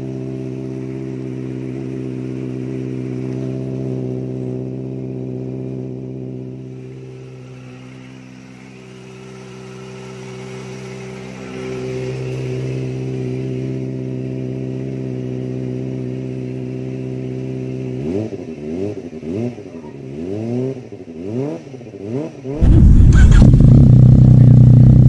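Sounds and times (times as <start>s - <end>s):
loud deep motorcycle engine: 0.0s - 25.0s
motorcycle engine idling and revving: 0.0s - 25.0s.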